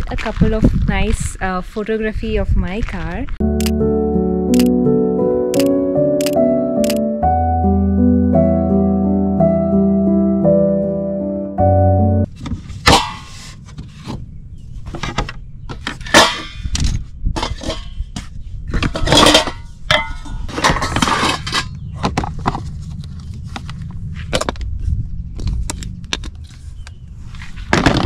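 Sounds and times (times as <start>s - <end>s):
steady low rumble: 12.2s - 28.0s
objects knocking and clattering: 14.9s - 22.8s.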